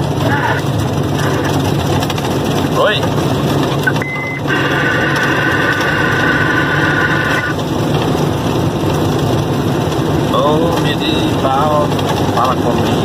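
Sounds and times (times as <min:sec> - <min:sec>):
truck engine running: 0:00.0 - 0:13.0
short high beep: 0:03.8 - 0:04.6
high-pitched multi-tone whine: 0:03.9 - 0:07.6.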